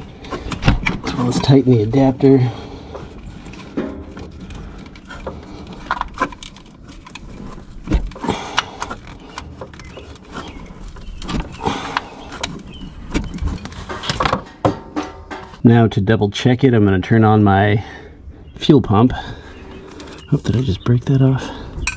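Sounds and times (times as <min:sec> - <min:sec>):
clicks and scrapes of metal parts: 0:00.0 - 0:15.7.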